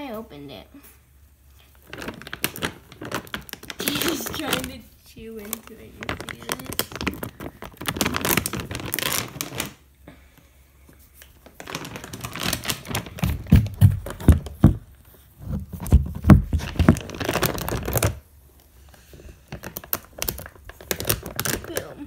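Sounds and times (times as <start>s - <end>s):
plastic bag crinkling: 1.6s - 9.9s, 11.2s - 14.8s, 15.4s - 18.2s, 19.1s - 22.0s
cardboard thumps: 13.2s - 14.9s, 15.5s - 17.1s.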